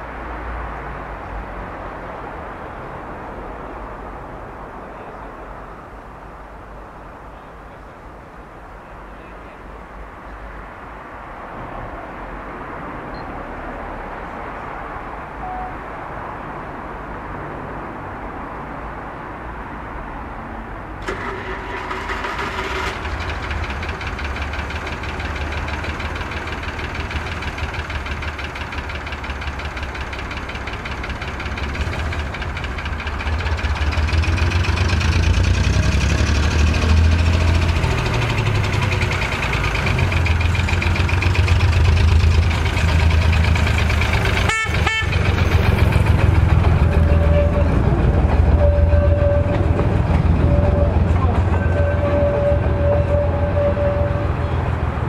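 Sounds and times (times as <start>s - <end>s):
locomotive engine rumbling: 21.0s - 55.0s.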